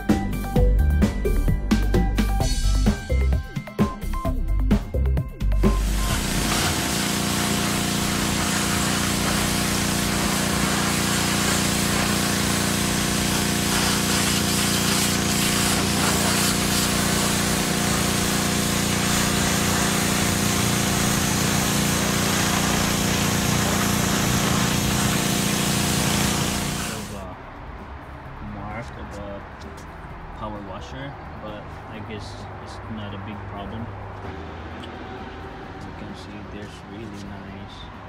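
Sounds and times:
pressure washer motor humming: 0:05.5 - 0:27.2
water jet hissing on wood: 0:05.7 - 0:27.2.

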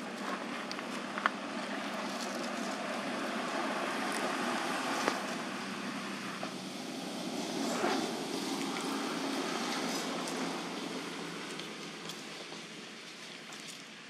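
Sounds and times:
outdoor background noise: 0:00.0 - 0:14.0.

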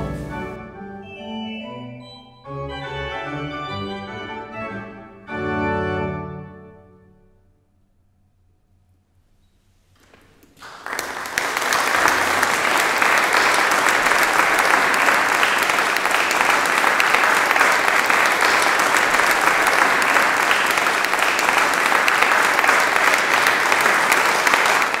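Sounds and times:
dense steady clapping: 0:10.5 - 0:25.0.

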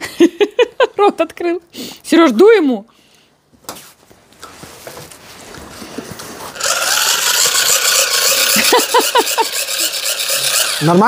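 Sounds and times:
electric fan whirring: 0:05.5 - 0:11.0.

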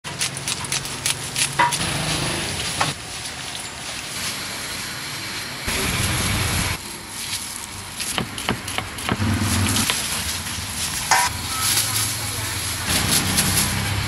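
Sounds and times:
noodles rustling in steel bowl: 0:09.4 - 0:14.0.

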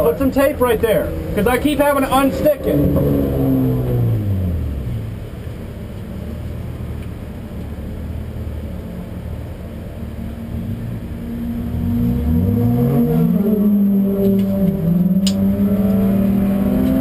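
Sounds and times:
race car engine idling: 0:00.0 - 0:03.5.

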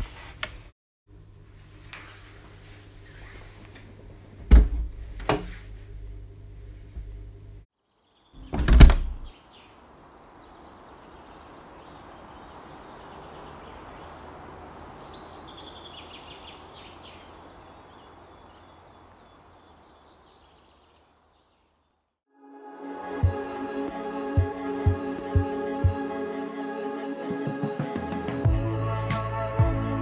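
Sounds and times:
birds chirping: 0:07.8 - 0:22.1
door banging shut: 0:08.4 - 0:09.3.

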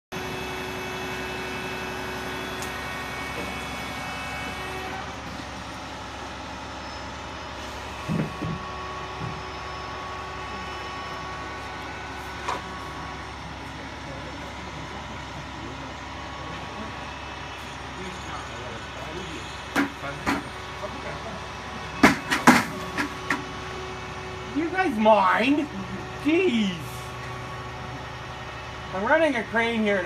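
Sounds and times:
crane engine running: 0:00.1 - 0:30.0
sharp knocks: 0:22.0 - 0:23.4.

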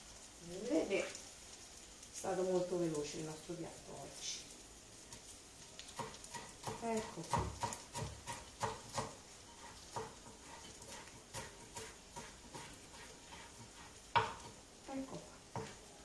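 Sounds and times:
knife chopping on wooden board: 0:06.0 - 0:15.8.

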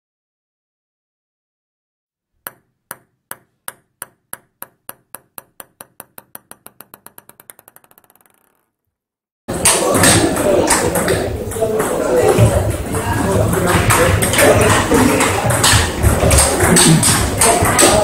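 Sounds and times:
table tennis ball bouncing: 0:02.4 - 0:08.8.

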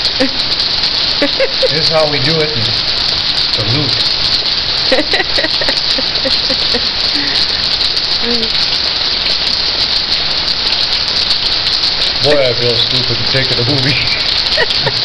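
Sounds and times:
pouring rain: 0:00.0 - 0:15.0
faint voices: 0:01.2 - 0:02.9, 0:03.5 - 0:04.0, 0:12.2 - 0:15.0.

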